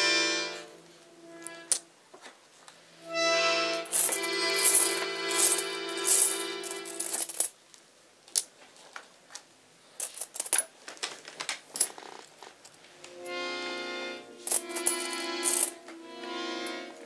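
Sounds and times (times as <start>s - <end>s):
held music chords: 0.0s - 1.8s, 2.8s - 7.2s, 12.8s - 17.0s.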